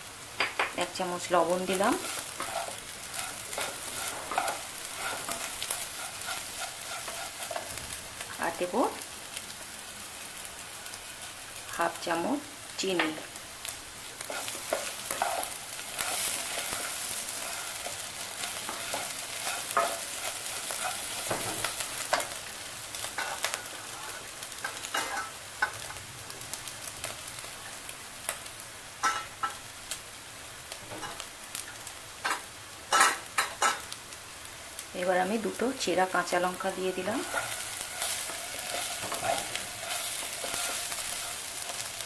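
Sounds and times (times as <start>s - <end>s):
rice sizzling in oil: 0.0s - 42.0s
spatula scraping pot: 37.0s - 41.4s.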